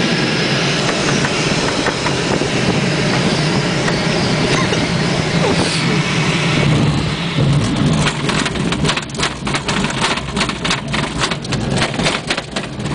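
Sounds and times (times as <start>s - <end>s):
rushing air in cockpit: 0.0s - 8.7s
fast irregular rattle of knocks: 0.8s - 3.2s, 7.4s - 12.9s.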